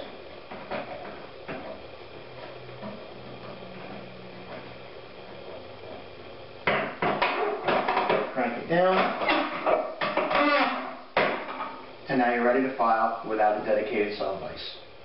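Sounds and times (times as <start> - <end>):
knocks and clanks of bench vise: 6.6 - 8.3, 8.9 - 11.8.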